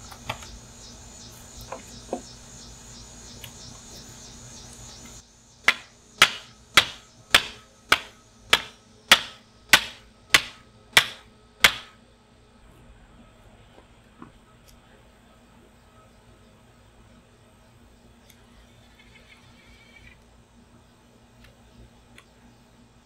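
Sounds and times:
hammer striking wooden stake: 0:05.6 - 0:12.0.

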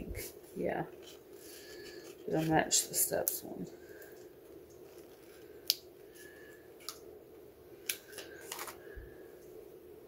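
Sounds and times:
faint hum: 0:00.0 - 0:10.0
paper rustling: 0:07.9 - 0:09.0.

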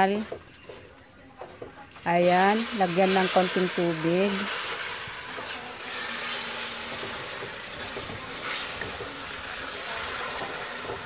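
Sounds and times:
wooden spatula scraping: 0:01.6 - 0:11.0
syrup sizzling in a wok: 0:02.1 - 0:11.0.

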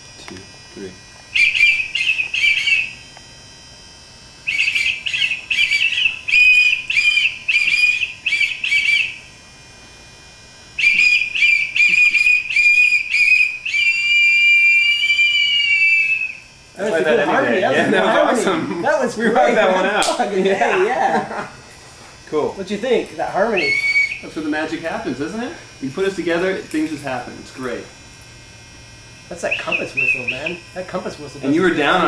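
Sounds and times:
whistles tooting in harmony: 0:01.4 - 0:03.0, 0:04.5 - 0:09.2, 0:10.8 - 0:16.5, 0:23.5 - 0:24.3, 0:29.4 - 0:30.7.

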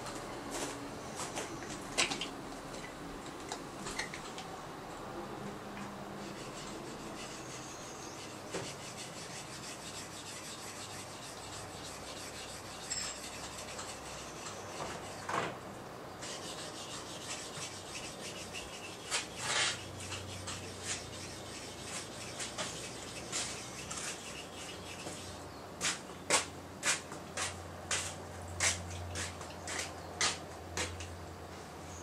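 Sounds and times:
blade scraping on whetstone: 0:06.2 - 0:15.3, 0:16.2 - 0:26.0.

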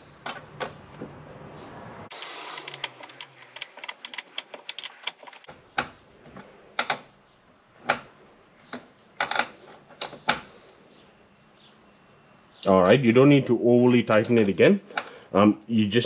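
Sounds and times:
ratchet wrench clicking: 0:02.1 - 0:05.5.

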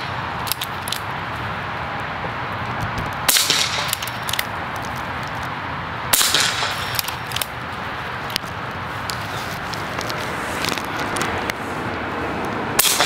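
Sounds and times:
air rifle shots: 0:03.2 - 0:04.5, 0:06.1 - 0:07.5, 0:12.8 - 0:13.0.

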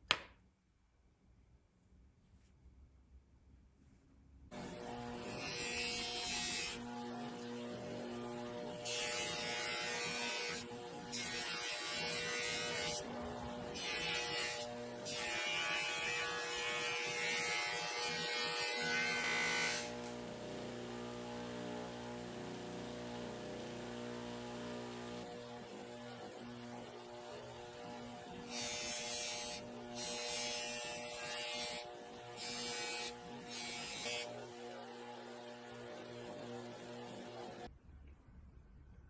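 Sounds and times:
buffer motor humming: 0:18.2 - 0:27.2.

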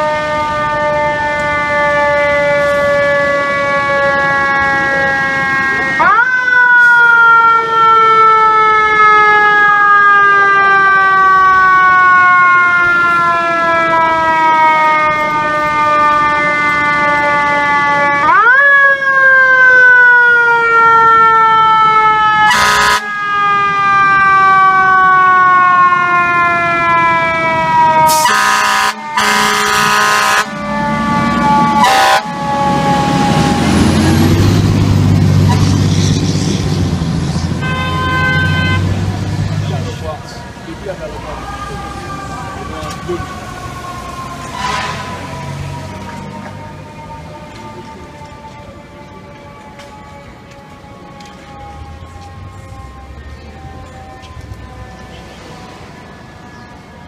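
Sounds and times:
heavy truck engine rumbling: 0:00.0 - 0:18.4, 0:19.9 - 0:57.0
fire truck siren wailing: 0:00.0 - 0:57.0
air horn blasts: 0:22.4 - 0:23.2, 0:28.0 - 0:30.6, 0:31.5 - 0:32.5, 0:37.6 - 0:39.0, 0:44.5 - 0:45.3.

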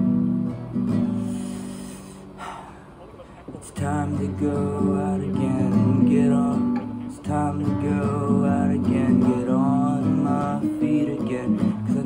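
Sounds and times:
acoustic guitar: 0:00.0 - 0:12.0
man singing: 0:03.5 - 0:12.0.

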